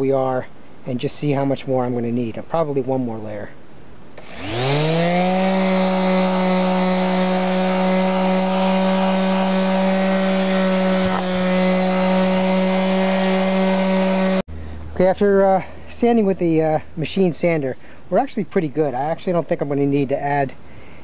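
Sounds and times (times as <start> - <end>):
palm sander humming: 4.2 - 14.5.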